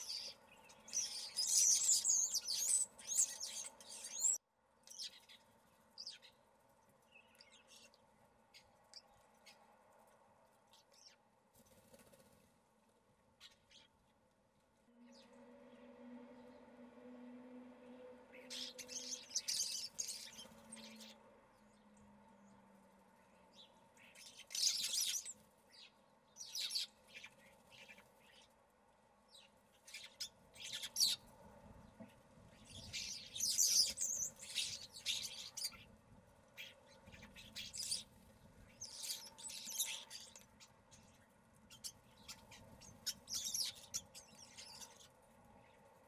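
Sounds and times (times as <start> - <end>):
starlings calling: 0.0 - 5.4, 18.3 - 21.2, 23.6 - 25.4, 29.9 - 31.2, 32.6 - 35.9, 36.6 - 38.1, 38.7 - 40.4, 41.7 - 45.1.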